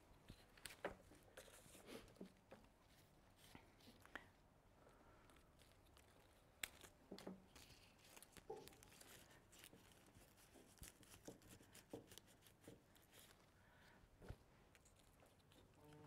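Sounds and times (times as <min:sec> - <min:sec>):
light clicks of flower stems: 0:03.4 - 0:10.1
rustling of foliage: 0:05.3 - 0:14.5.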